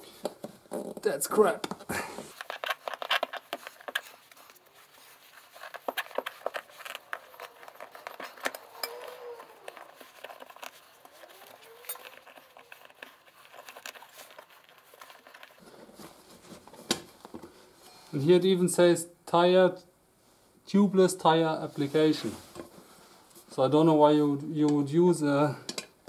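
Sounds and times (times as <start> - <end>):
faint drawn-out squeaks: 6.1 - 13.1.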